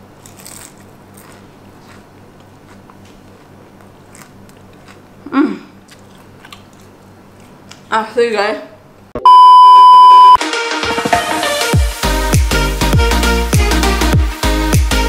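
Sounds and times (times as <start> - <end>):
person chewing crispy food: 0.0 - 7.9
person humming mm: 5.3 - 5.8.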